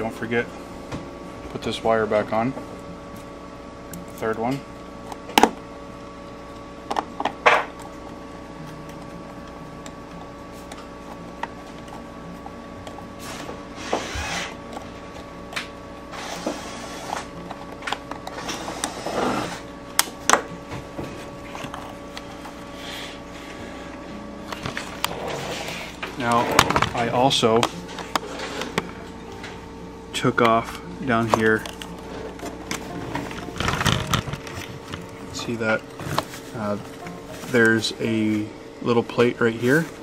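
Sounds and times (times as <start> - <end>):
faint steady hum: 0.0 - 40.0
scraping and rubbing: 10.2 - 15.3, 16.0 - 19.7, 24.6 - 27.1.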